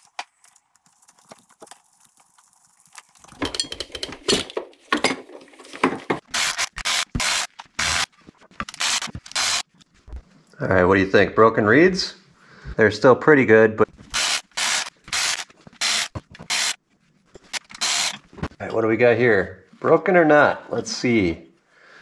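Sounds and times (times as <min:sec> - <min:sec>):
power tool bursts: 0:17.8 - 0:18.2.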